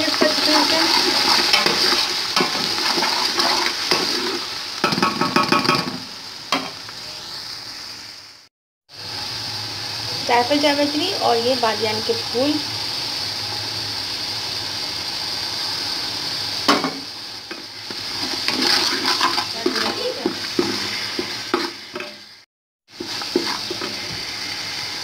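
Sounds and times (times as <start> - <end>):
oil sizzling in a pot: 0.0 - 25.0
wooden spatula scraping a pot: 0.2 - 4.4, 18.2 - 21.8, 23.0 - 24.3.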